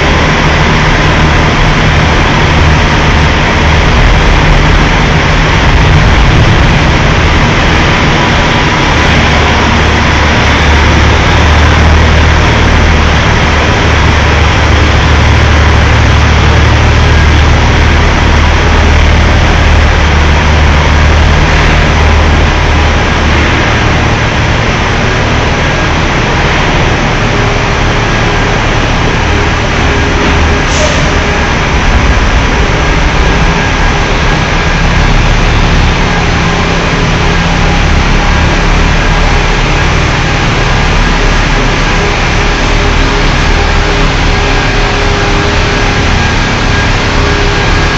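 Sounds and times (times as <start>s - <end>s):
truck diesel engine droning: 0.0s - 47.9s.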